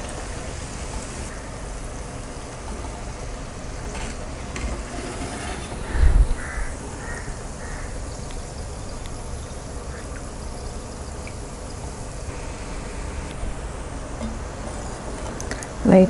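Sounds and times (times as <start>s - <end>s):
crow cawing: 5.9s - 8.0s.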